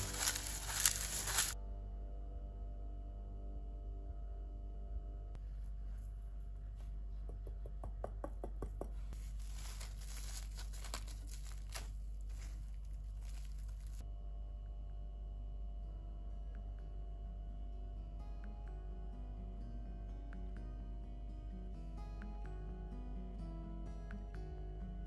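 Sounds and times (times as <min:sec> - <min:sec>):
crinkling and tearing: 0:00.0 - 0:01.6, 0:09.2 - 0:14.0.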